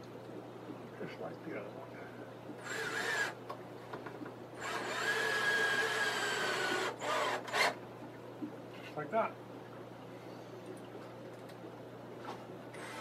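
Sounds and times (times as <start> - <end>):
cordless drill driving screw: 2.6 - 3.4, 4.6 - 7.8, 12.8 - 13.0.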